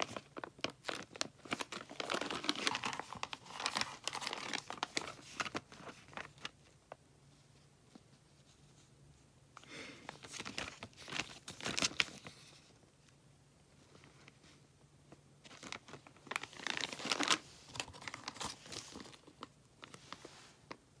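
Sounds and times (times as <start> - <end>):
plastic bags crinkling: 0.0 - 6.6, 10.1 - 12.3, 15.5 - 20.8.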